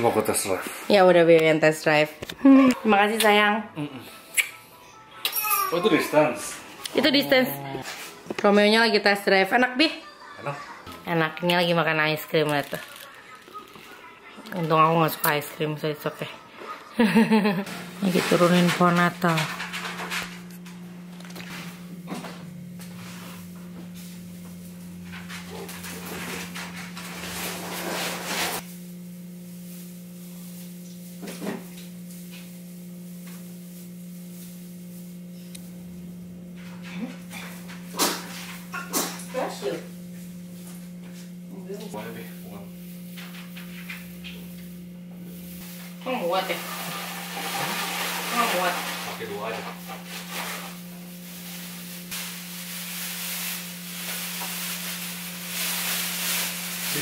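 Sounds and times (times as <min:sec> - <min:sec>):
plastic branches rustling: 0:12.2 - 0:14.0, 0:45.6 - 0:57.0
steady low hum: 0:14.2 - 0:57.0.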